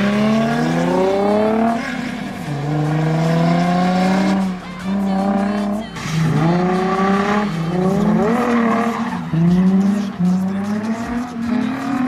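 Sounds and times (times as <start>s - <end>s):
car engine revving: 0.0s - 12.0s
tyres skidding: 0.0s - 12.0s.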